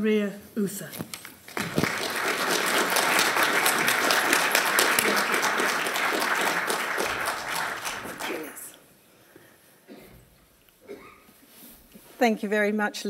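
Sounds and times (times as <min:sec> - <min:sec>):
audience applauding: 0:01.5 - 0:08.8.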